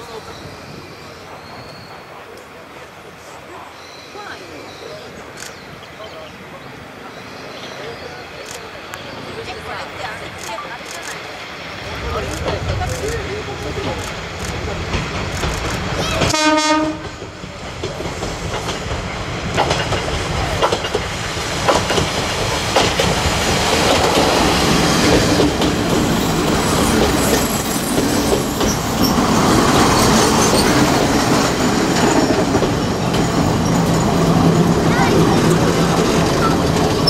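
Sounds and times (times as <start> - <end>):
train wheels clacking over rail joints: 12.1 - 37.0
train horn blast: 16.2 - 17.2.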